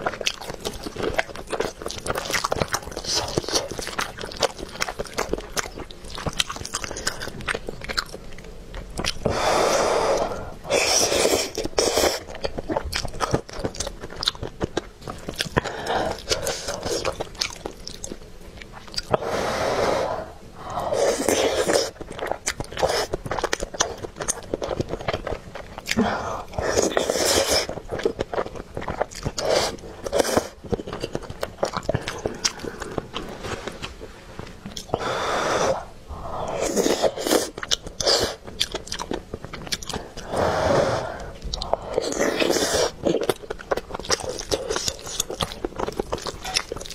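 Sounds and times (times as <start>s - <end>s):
wet chewing: 0.0s - 19.3s, 20.6s - 46.9s.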